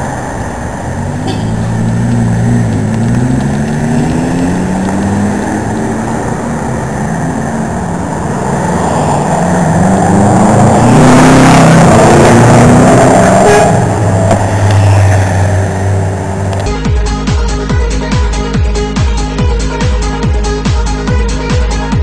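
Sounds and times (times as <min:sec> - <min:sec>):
sports cars accelerating past: 0:00.1 - 0:16.6.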